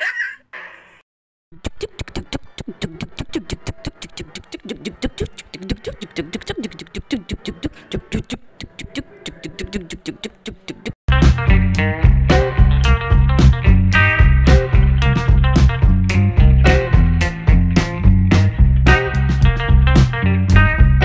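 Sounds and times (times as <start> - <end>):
low wavering mouth sounds: 1.6 - 11.0
vocal percussion clicks: 1.6 - 11.0.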